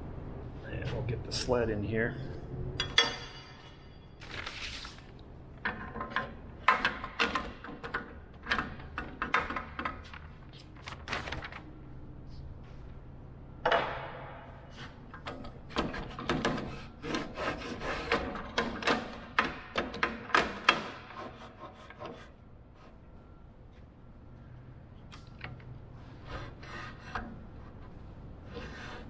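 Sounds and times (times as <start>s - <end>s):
steady low hum: 0.0s - 29.0s
paper rustling: 4.2s - 5.2s, 10.5s - 11.8s.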